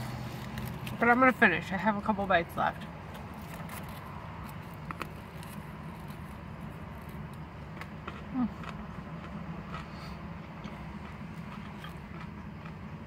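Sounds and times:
bread crunching: 0.0s - 1.2s, 3.1s - 10.0s
steady low hum: 0.0s - 13.0s
person humming: 8.3s - 8.6s.

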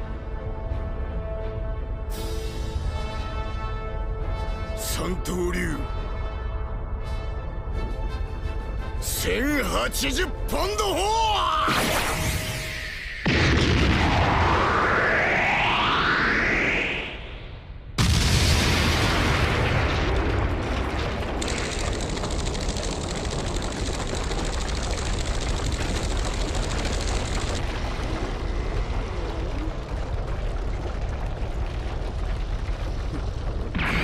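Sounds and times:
explosion boom: 11.7s - 21.9s, 27.6s - 34.0s
deep rumble of crashing rock: 18.0s - 34.0s.

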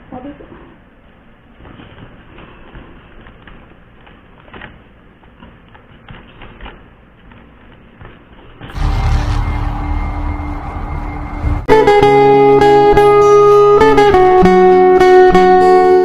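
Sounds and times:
loud guitar music: 8.7s - 16.0s.

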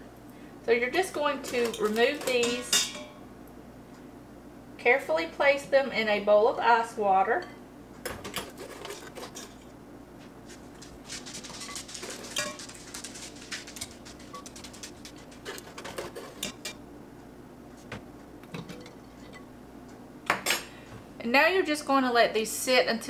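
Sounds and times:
eggs and ice clinking on metal and glass: 1.4s - 3.1s, 11.4s - 16.8s.

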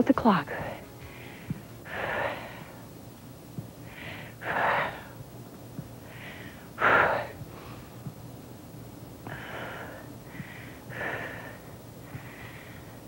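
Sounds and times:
woman breathing deeply: 0.5s - 2.9s, 3.8s - 5.2s, 6.0s - 8.1s, 9.2s - 13.0s.

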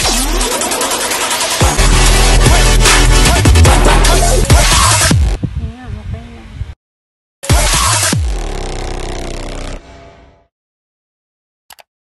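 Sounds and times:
dubstep electronic music: 0.0s - 5.4s, 7.4s - 9.8s.

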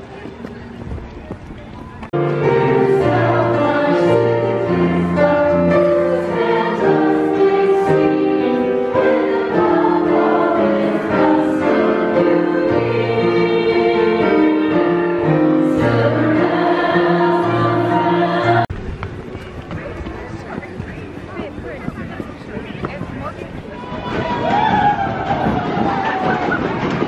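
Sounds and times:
choir singing: 2.2s - 18.7s.

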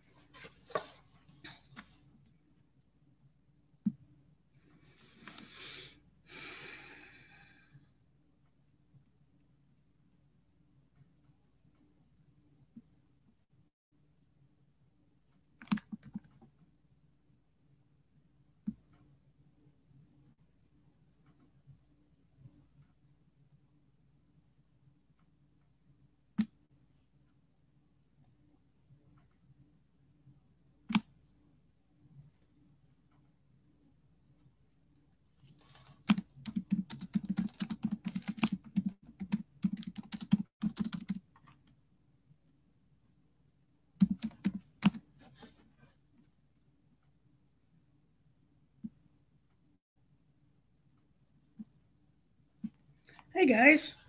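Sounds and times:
keyboard clicks: 15.6s - 16.4s, 36.0s - 41.8s, 44.0s - 45.0s.

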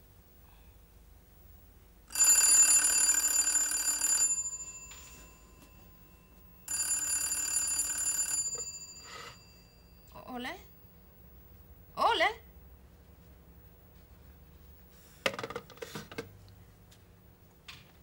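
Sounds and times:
telephone bell ringing: 2.1s - 10.2s.

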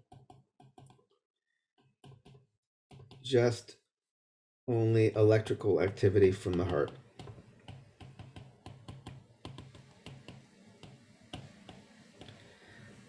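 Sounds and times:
stylus tapping on tablet screen: 0.0s - 1.0s, 6.3s - 12.4s.

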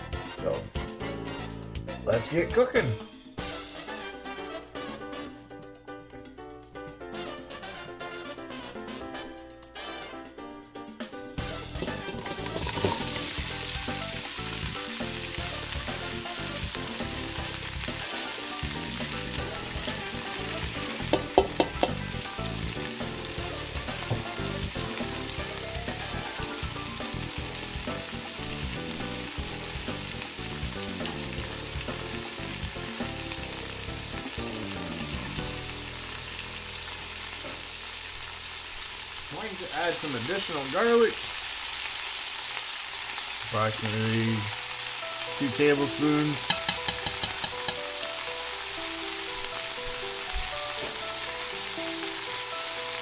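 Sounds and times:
vegetables sizzling in oil: 11.4s - 53.0s.

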